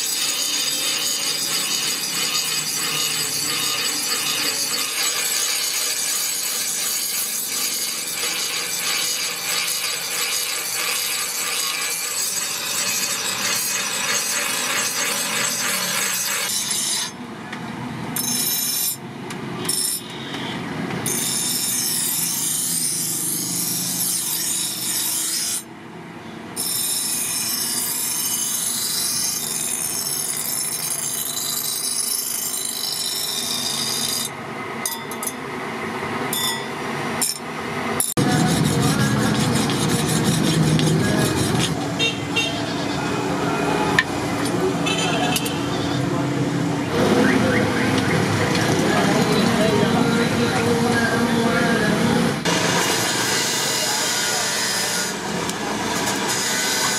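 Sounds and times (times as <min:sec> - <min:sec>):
grinding wheel motor tone: 0:00.0 - 0:17.1, 0:38.0 - 0:46.2
steel rasping on grinding wheel: 0:00.0 - 0:17.2, 0:21.1 - 0:25.7, 0:26.6 - 0:34.4, 0:38.0 - 0:42.9, 0:52.5 - 0:56.9.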